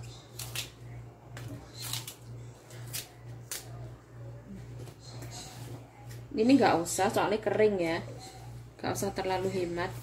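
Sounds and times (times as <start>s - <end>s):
stems being peeled by hand: 0.0s - 3.8s
steady low hum: 0.0s - 10.0s.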